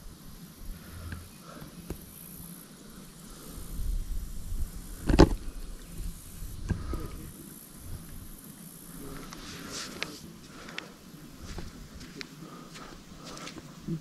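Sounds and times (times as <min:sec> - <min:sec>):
wind rumble on microphone: 0:03.5 - 0:08.4.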